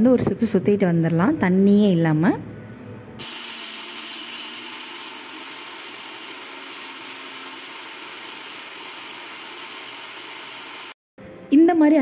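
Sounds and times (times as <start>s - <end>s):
mixer grinder grinding: 3.2s - 11.0s.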